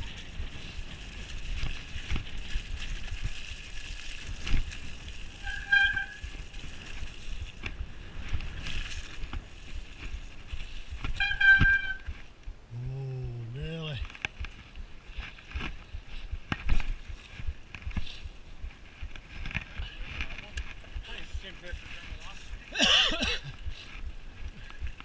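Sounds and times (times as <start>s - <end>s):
bike frame knocks and rattles: 0.0s - 12.2s, 16.4s - 18.1s
bike tyres rolling through mud: 0.0s - 12.6s, 13.5s - 25.0s.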